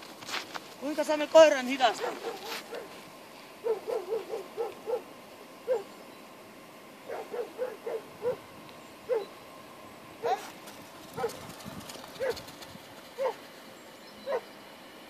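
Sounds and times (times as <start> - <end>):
dog whining yelps: 2.0 - 2.9, 3.6 - 5.1, 5.7 - 5.9, 7.1 - 8.4, 9.1 - 9.4, 10.2 - 10.5, 13.2 - 13.4, 14.2 - 14.5.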